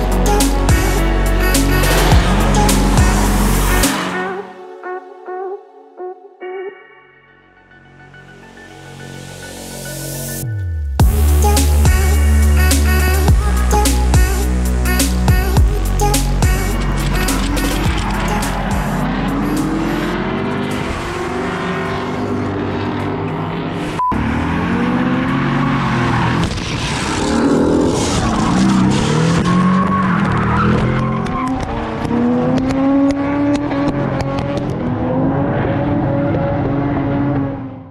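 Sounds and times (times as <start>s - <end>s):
car engines revving: 0.0s - 4.6s, 11.0s - 37.9s
tyres screeching: 14.8s - 22.3s.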